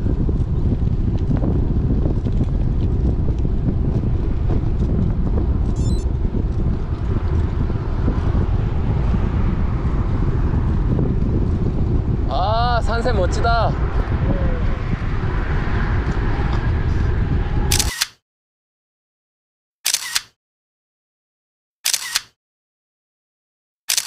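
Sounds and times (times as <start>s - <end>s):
wind buffeting microphone: 0.0s - 17.9s.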